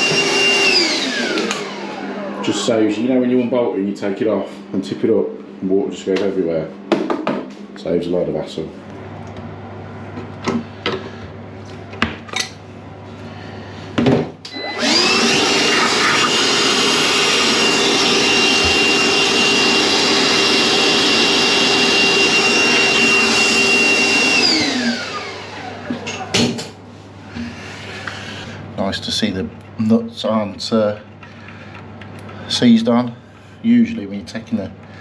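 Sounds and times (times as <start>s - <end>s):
wet dry vacuum motor whining: 0.0s - 5.0s, 14.4s - 26.6s.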